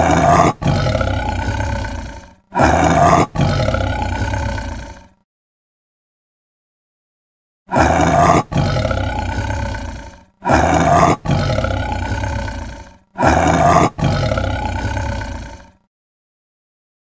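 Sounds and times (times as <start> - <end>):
big cat roaring: 0.0 - 5.2, 7.7 - 15.9.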